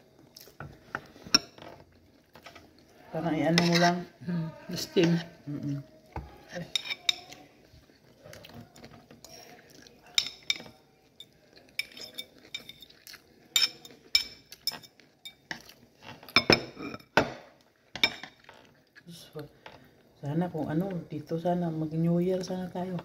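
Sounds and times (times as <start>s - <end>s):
cutlery clinking on a plate: 6.6s - 7.4s, 10.1s - 18.6s.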